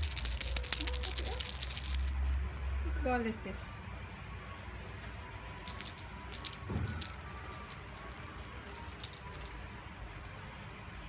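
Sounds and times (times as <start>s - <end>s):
cat ball bell jingling: 0.0s - 2.7s, 5.4s - 9.6s.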